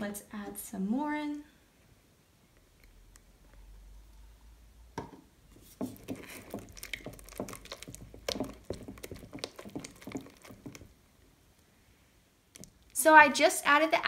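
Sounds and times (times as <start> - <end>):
spatula squishing slime in glass bowl: 5.5 - 11.0.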